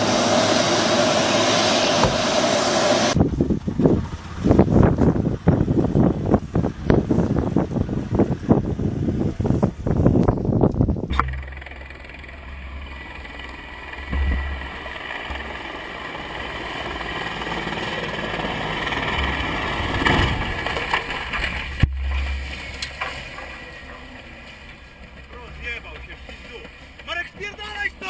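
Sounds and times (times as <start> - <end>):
vehicle engine rumble: 0.0 - 28.0
wind noise on microphone: 3.0 - 15.8
sharp crack: 11.1 - 16.0.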